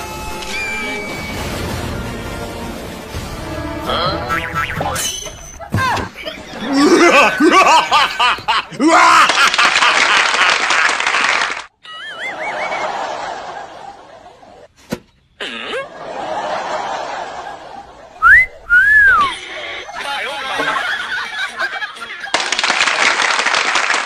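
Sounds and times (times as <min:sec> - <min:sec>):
rising slide whistle: 0:00.0 - 0:02.0
warbling whistle tones: 0:00.3 - 0:02.0, 0:18.2 - 0:19.4
snickering laughter: 0:06.2 - 0:14.6, 0:15.4 - 0:22.4.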